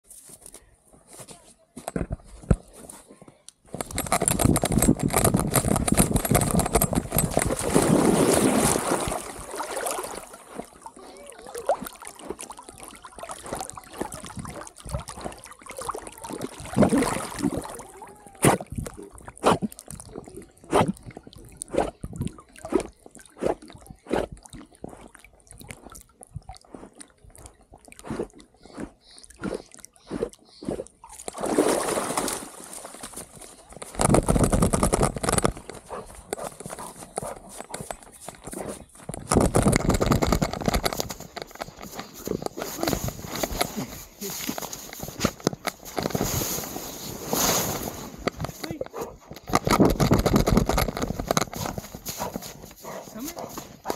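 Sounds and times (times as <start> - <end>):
water sloshing and gurgling: 3.7 - 53.9
dog splashing in water: 7.4 - 18.7, 31.0 - 33.4.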